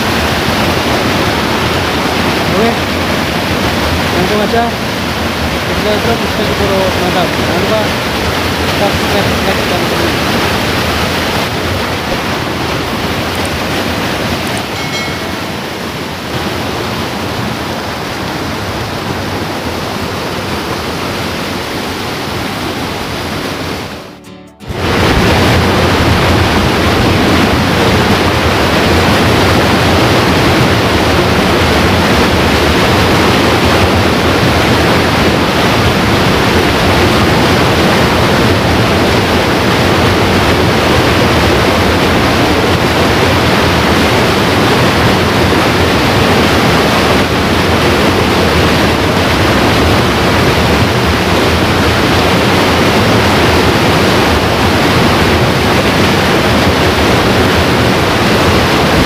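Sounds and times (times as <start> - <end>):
river current rushing: 0.0 - 59.0.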